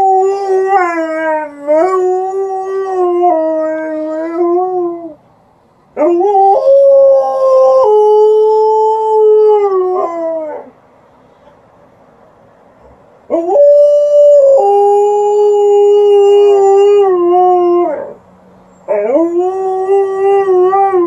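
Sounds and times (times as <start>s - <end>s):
dog howling: 13.3s - 18.2s.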